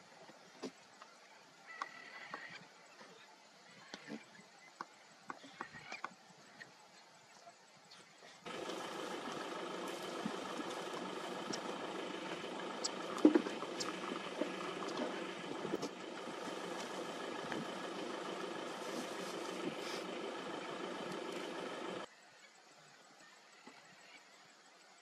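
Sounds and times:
car engine idling: 8.5s - 22.1s.

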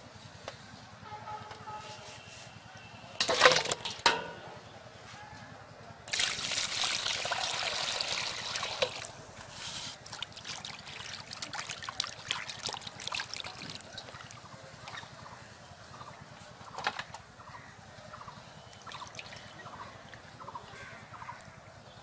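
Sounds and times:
water pouring into steel bowl: 6.1s - 9.2s, 9.9s - 14.4s
hands splashing chicken in water: 10.0s - 15.0s.

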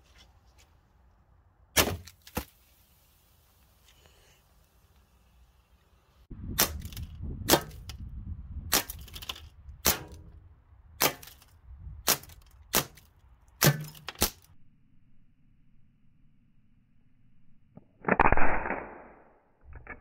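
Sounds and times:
bb revolver shots: 1.8s - 2.2s, 6.5s - 7.9s, 9.8s - 10.3s, 11.0s - 11.4s, 13.6s - 14.4s.

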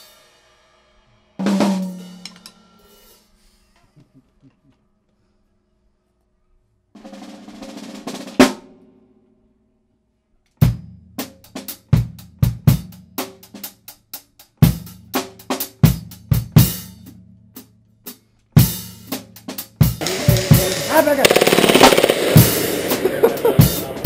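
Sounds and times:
cymbal crash: 0.0s - 3.3s, 20.0s - 24.0s
snare and bass drum beat: 1.4s - 2.4s, 10.6s - 17.1s, 18.6s - 24.0s
rising rush: 20.0s - 24.0s.

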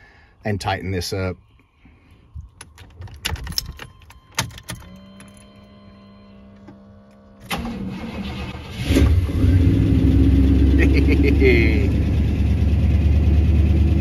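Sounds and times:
keys jangling: 2.5s - 5.5s
warning buzzer: 4.6s - 7.6s
engine running: 6.1s - 14.0s.

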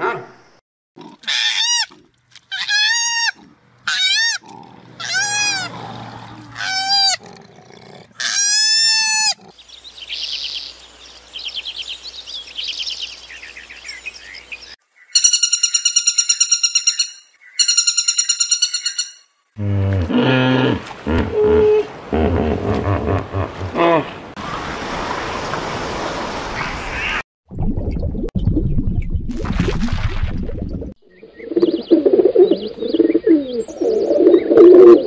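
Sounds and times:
high rising and falling animal calls: 2.5s - 7.2s
fast pulsing high-pitched call: 15.2s - 19.2s.

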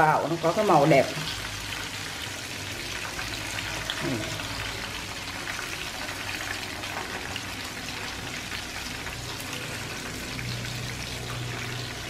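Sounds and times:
shrimp deep-frying in oil: 0.0s - 12.0s.

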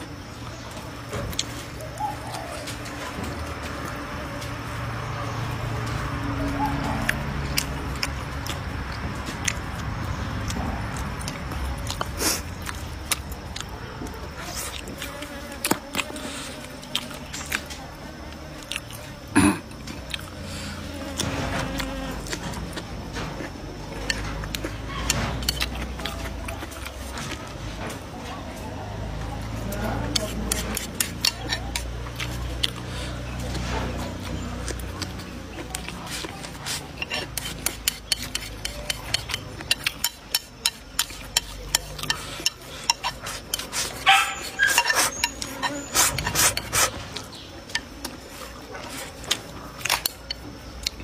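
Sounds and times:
chewing: 0.0s - 51.0s
chopsticks clicking against bowl: 30.0s - 32.9s, 34.6s - 46.8s, 49.2s - 51.0s
chopsticks clicking on wooden plate: 37.0s - 43.7s.

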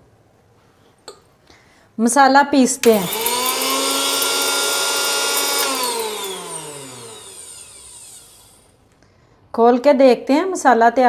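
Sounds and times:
mixer grinder motor whining: 2.8s - 8.8s.

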